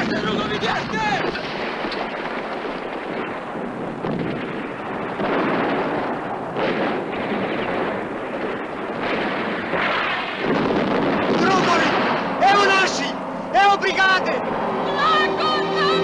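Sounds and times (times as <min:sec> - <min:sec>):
explosions: 0:00.0 - 0:13.0
distant gunfire: 0:01.3 - 0:12.4.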